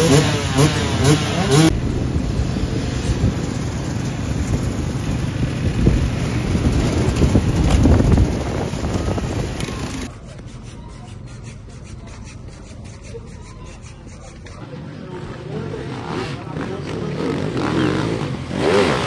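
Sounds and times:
motorcycle engines revving: 0.0s - 19.0s
wind on microphone: 1.7s - 10.1s
dirt bikes riding past: 14.6s - 19.0s.

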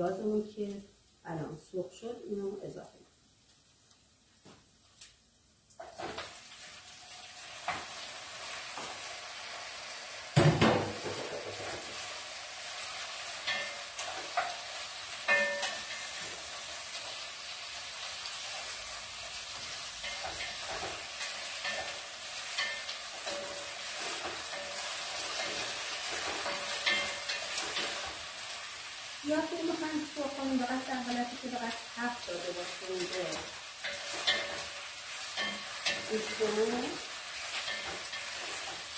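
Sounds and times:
chicken sizzling in hot oil: 5.5s - 38.9s.

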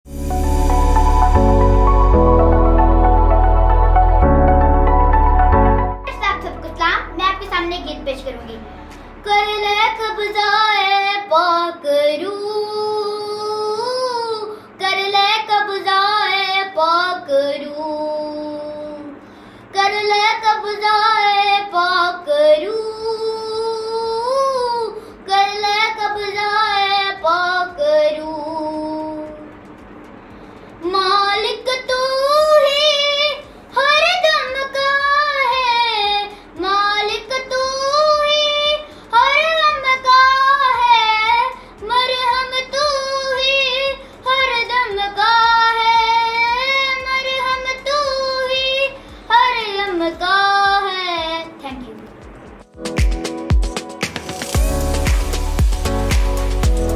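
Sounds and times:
girl singing: 6.0s - 29.6s, 30.8s - 52.2s.

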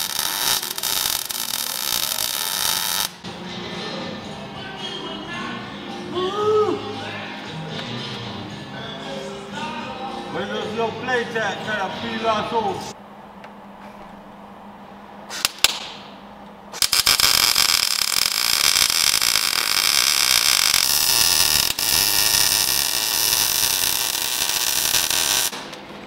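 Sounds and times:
welding arc crackling and hissing: 0.0s - 3.2s, 16.8s - 25.7s
sharp pops: 15.3s - 16.1s.

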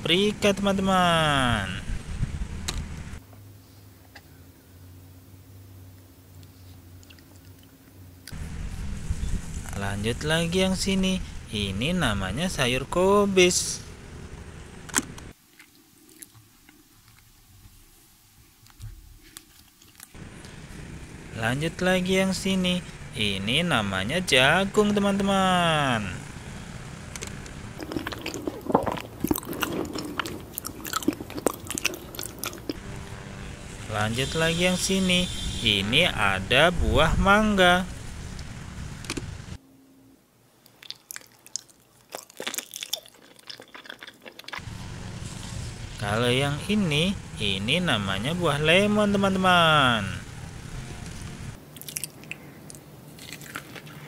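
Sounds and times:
outdoor background noise: 0.0s - 54.0s
crunching of chewing raw cabbage: 15.4s - 17.4s, 27.8s - 32.8s, 40.6s - 44.7s, 51.6s - 54.0s.

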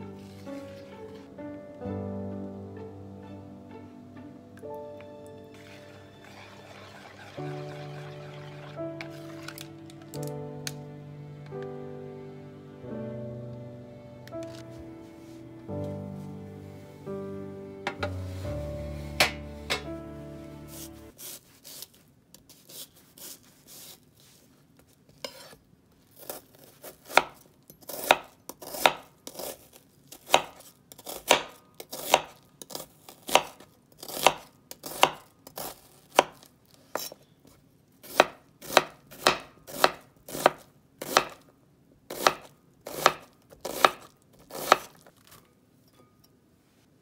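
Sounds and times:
knife chopping on cutting board: 19.2s - 19.9s, 27.0s - 29.5s, 30.3s - 36.4s, 38.1s - 41.4s, 42.1s - 44.9s.

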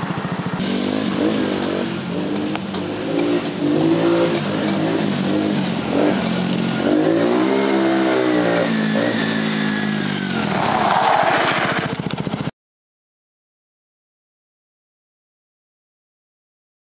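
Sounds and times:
quad engine revving: 0.0s - 12.5s.

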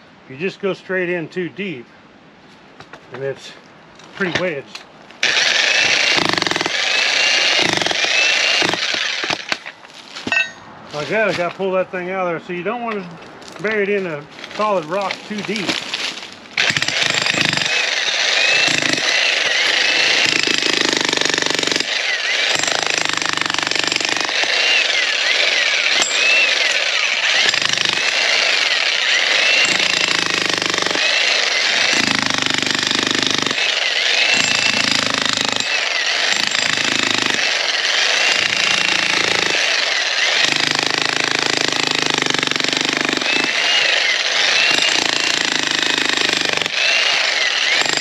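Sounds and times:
jackhammer pounding rock: 5.2s - 9.6s, 16.6s - 48.0s.

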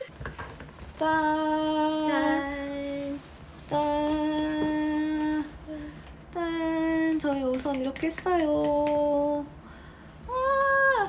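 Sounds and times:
woman humming: 1.0s - 5.8s.

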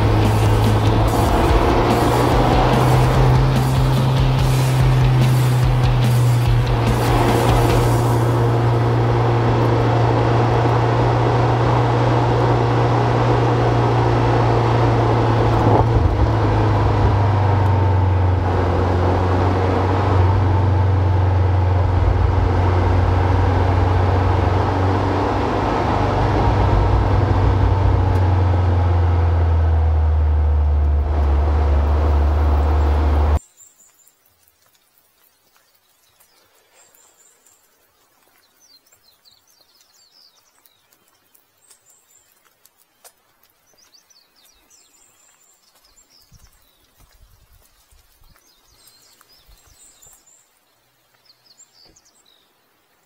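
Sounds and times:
car engine drone in cabin: 0.0s - 33.4s
tyre and wet road noise: 0.0s - 53.0s.

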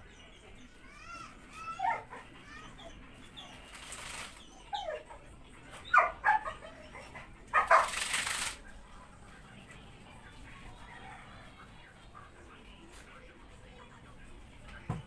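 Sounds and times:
small dogs barking and yelping: 1.4s - 8.4s.

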